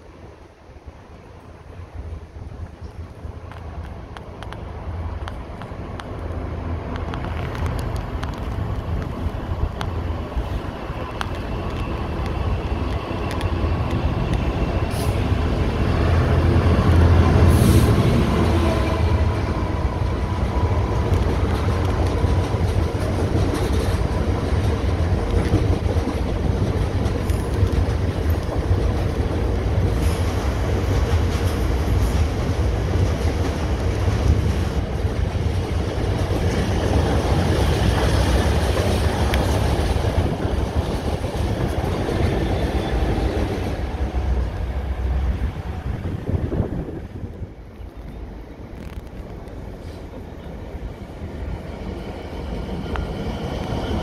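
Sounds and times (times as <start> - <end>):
diesel locomotive engine: 0.0 - 54.0
train wheels on rails clattering: 5.2 - 44.6.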